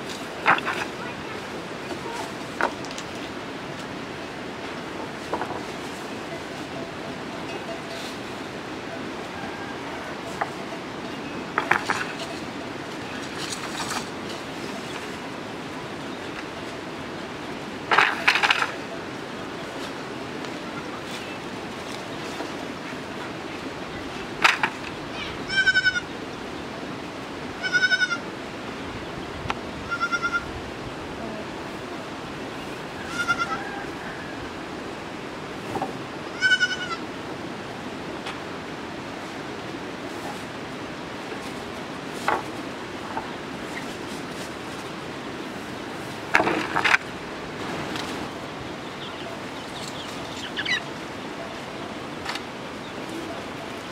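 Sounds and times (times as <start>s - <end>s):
wooden poles knocking and clattering: 0.0s - 1.0s, 1.9s - 3.3s, 5.2s - 5.9s, 11.5s - 12.5s, 13.1s - 15.1s, 17.8s - 19.0s, 24.3s - 25.0s, 42.1s - 43.3s, 46.2s - 48.2s
steady background hiss: 0.0s - 53.9s
goat bleating: 25.2s - 26.1s, 27.6s - 28.2s, 29.8s - 30.5s, 33.0s - 33.6s, 36.3s - 37.0s.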